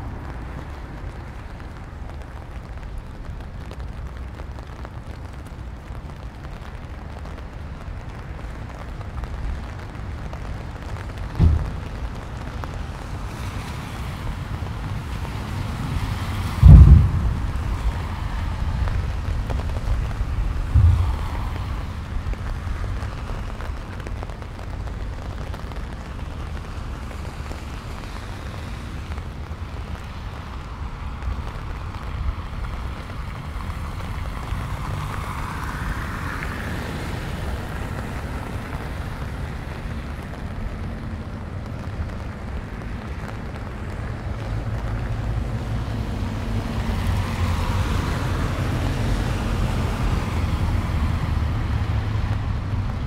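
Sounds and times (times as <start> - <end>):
rain hiss: 0.0 - 53.0
wind buffeting microphone: 10.0 - 25.1.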